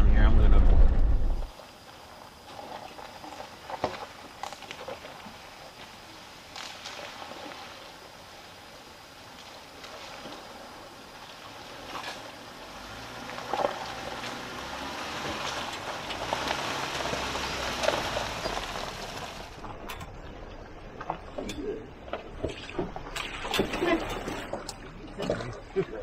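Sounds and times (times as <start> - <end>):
vehicle engine: 0.0 - 1.5, 9.4 - 21.9
tyres crunching on gravel: 1.5 - 7.7, 9.4 - 21.3
water splashing at wheel: 1.5 - 26.0.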